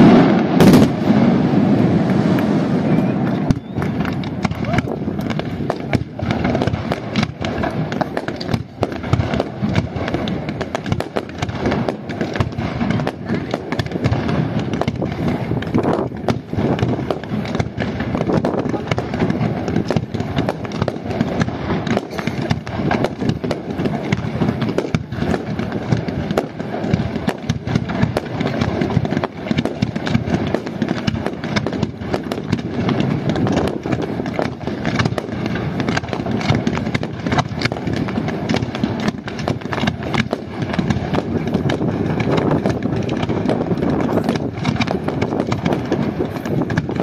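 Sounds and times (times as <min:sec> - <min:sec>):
fireworks bangs and crackling: 0:00.0 - 0:47.0.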